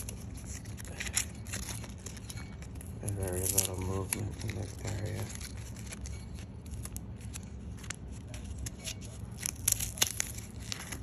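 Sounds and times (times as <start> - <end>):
tape being peeled crackling: 0.0 - 11.0.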